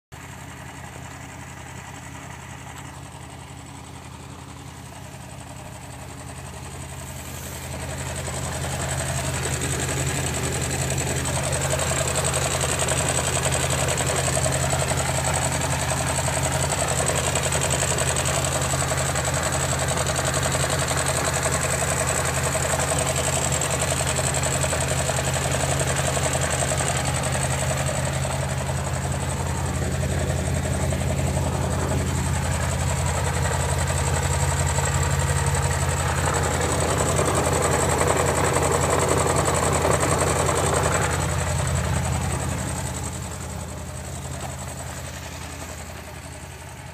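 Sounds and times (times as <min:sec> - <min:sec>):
car engine idling: 0:00.0 - 0:46.9.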